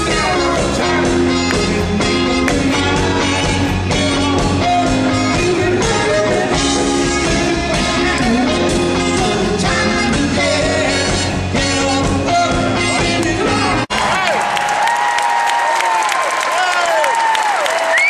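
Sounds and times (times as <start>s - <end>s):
live rock band playing: 0.0s - 13.9s
man singing: 0.0s - 13.9s.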